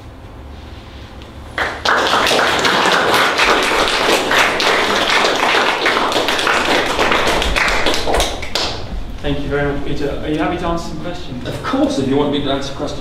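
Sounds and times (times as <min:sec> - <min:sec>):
audience applauding: 0:01.6 - 0:08.9.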